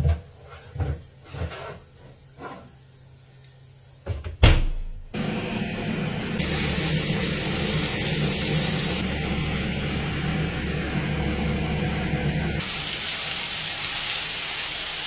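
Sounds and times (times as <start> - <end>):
knocks and loud clunk: 4.0 - 5.0
steak sizzling in a pan: 6.4 - 9.0, 12.6 - 15.0.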